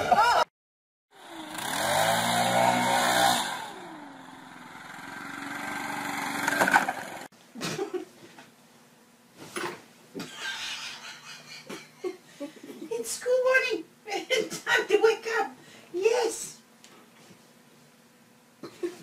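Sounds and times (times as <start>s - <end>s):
leaf blower engine revving: 1.1s - 7.3s.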